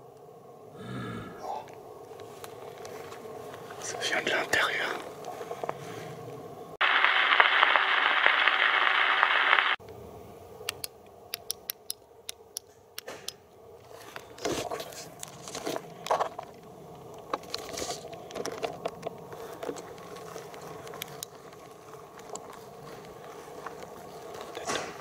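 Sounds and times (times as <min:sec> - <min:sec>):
loud hiss-like noise burst: 0:06.8 - 0:10.4
sharp clicks: 0:10.6 - 0:13.4
footsteps in grass: 0:19.4 - 0:24.6.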